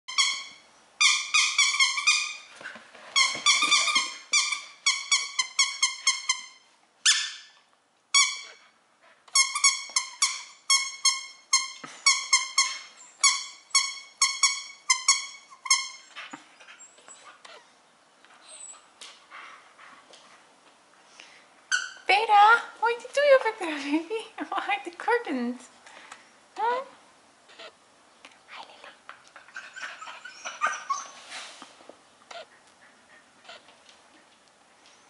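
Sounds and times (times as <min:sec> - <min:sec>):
squeaky toy squeaking: 0:00.1 - 0:02.5, 0:03.2 - 0:08.7, 0:09.3 - 0:17.6, 0:21.7 - 0:22.1, 0:27.5 - 0:27.8, 0:29.6 - 0:31.2.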